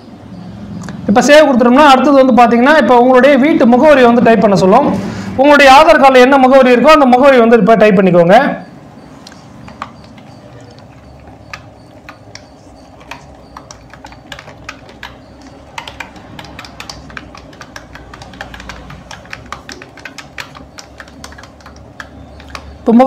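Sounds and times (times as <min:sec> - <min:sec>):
computer keyboard typing: 0:08.9 - 0:23.0.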